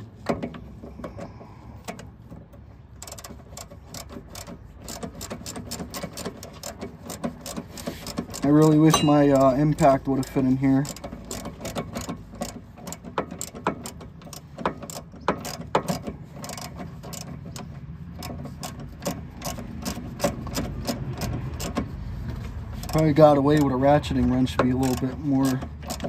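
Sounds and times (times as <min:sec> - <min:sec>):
socket ratchet clicking: 0:03.0 - 0:09.8, 0:10.8 - 0:21.9.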